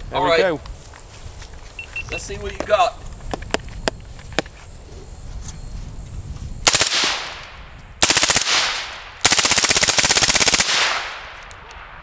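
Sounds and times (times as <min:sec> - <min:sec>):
suppressed rifle full-auto bursts: 0:06.7 - 0:07.4, 0:08.0 - 0:11.5.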